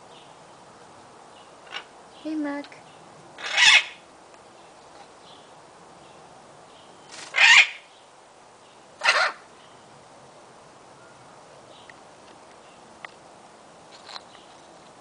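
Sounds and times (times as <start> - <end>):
macaw screeching: 3.4 - 4.0, 7.2 - 7.9, 9.0 - 9.4.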